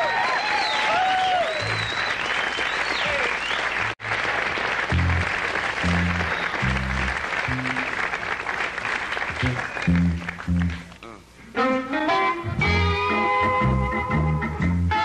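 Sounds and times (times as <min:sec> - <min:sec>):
audience applauding and cheering: 0:00.0 - 0:11.0
low bass notes: 0:04.9 - 0:08.0, 0:09.4 - 0:15.0.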